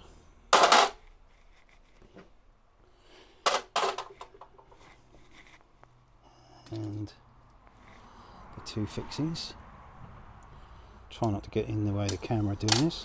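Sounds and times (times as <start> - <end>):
tools clattering on workbench: 0.6 - 1.0, 3.5 - 4.7
quiet handling noises: 3.5 - 8.1.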